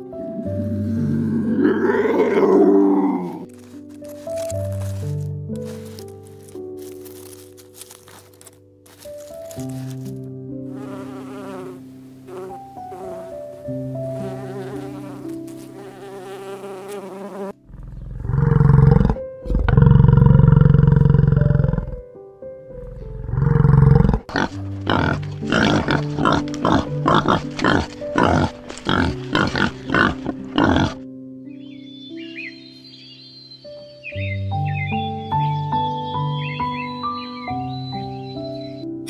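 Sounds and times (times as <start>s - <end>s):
soft piano music: 0.0s - 39.0s
bison grunting: 0.2s - 3.6s, 17.6s - 22.1s, 22.7s - 31.0s
bison bellowing: 0.4s - 3.5s, 17.6s - 22.1s, 22.7s - 31.0s
bee buzzing: 10.7s - 18.0s, 24.2s - 31.0s.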